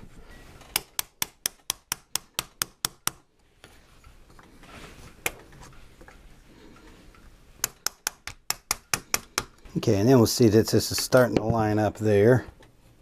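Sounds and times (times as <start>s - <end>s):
wooden dowel tapping on metal: 0.7s - 3.2s, 5.1s - 9.7s.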